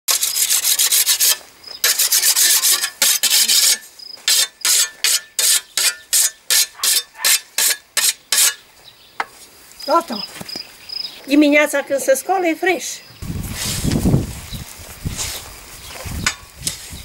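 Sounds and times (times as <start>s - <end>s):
whetstone rasping on scythe blade: 0.1s - 8.6s.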